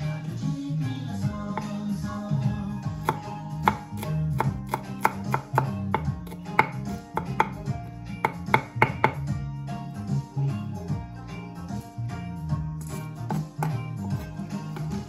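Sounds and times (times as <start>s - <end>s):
soft background music: 0.0s - 15.0s
knife chopping on cutting board: 1.5s - 1.8s, 2.9s - 9.3s, 12.8s - 15.0s.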